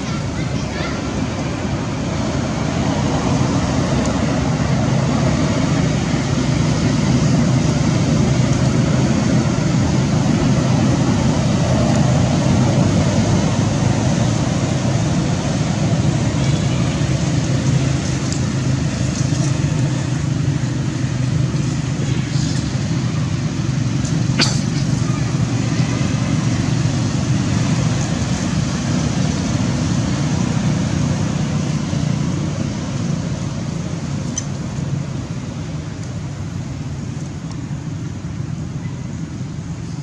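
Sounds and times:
distant road traffic rumbling: 0.0s - 40.0s.

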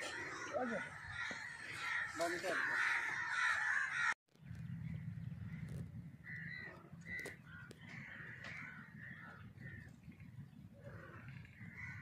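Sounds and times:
crows cawing: 0.0s - 4.2s, 5.5s - 10.0s, 10.8s - 12.0s.

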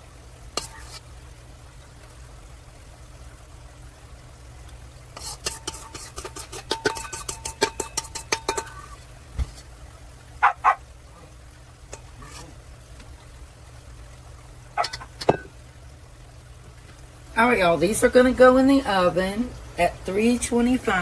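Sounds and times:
metal spoon clinking on steel bowl: 5.5s - 8.8s.

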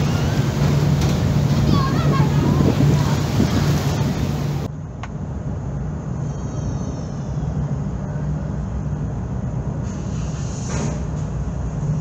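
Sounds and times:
wind and water rush: 0.0s - 5.8s
low engine rumble: 0.0s - 12.0s.

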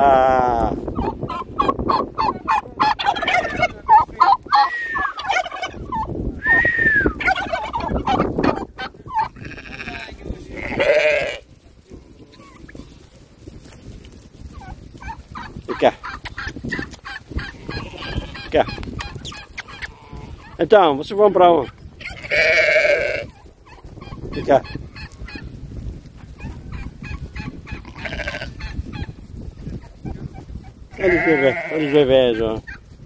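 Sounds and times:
turkeys gobbling: 0.8s - 9.4s, 14.4s - 22.4s, 23.2s - 25.6s, 26.2s - 31.0s, 32.2s - 32.9s
sheep bleating: 9.2s - 11.4s, 17.5s - 18.6s, 22.0s - 23.4s, 27.8s - 28.6s, 30.9s - 32.2s.

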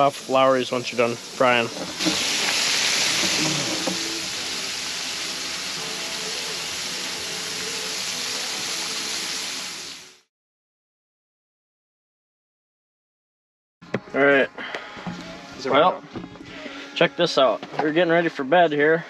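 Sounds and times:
fish frying in hot oil: 0.0s - 10.3s.

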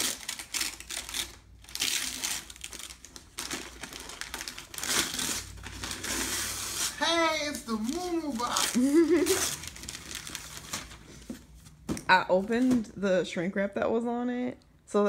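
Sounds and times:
wrapping paper rustling: 0.0s - 11.9s.

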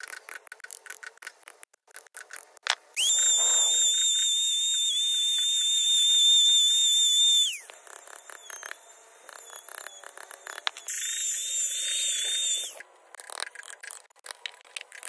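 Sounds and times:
small power tool whining: 3.0s - 12.8s.

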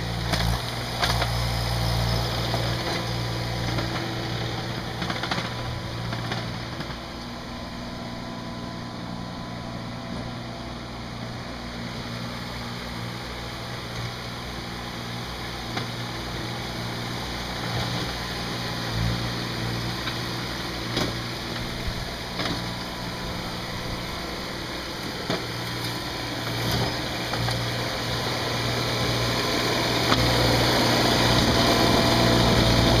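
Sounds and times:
skid steer engine running: 0.0s - 33.0s.

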